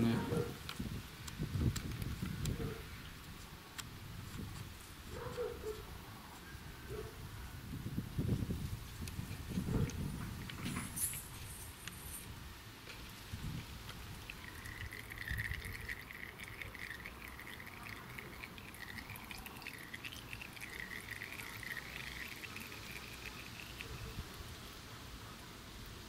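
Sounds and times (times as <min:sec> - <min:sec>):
oil trickling and dripping: 0:08.8 - 0:26.0.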